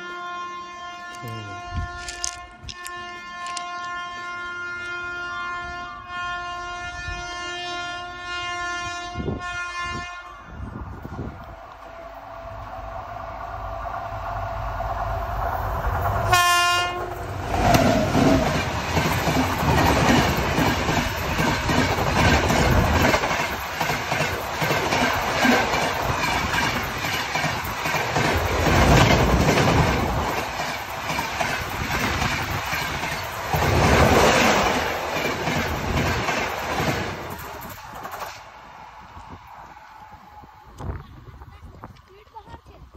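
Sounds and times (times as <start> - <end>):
train horn: 0.0 - 10.8, 16.2 - 18.6
train coaches rumbling past: 0.0 - 42.9
wheels clacking over rail joints: 16.9 - 38.6.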